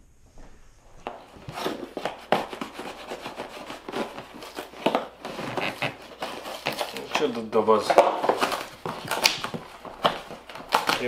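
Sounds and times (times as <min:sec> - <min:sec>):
cardboard rasping and tearing: 0:01.0 - 0:11.0.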